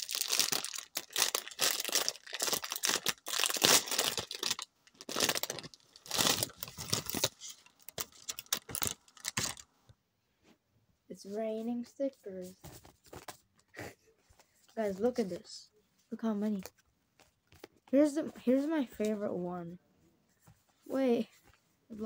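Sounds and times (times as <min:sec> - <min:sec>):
plastic bag crinkling: 0:00.0 - 0:09.7.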